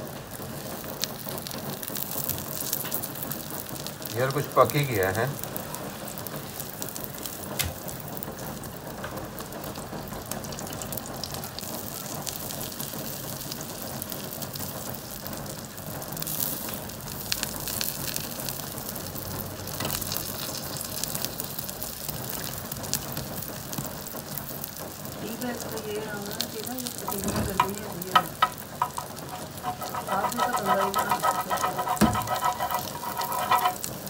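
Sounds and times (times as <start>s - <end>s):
omelette sizzling in hot oil: 0.0s - 34.0s
metal spatula scraping pan: 26.9s - 34.0s.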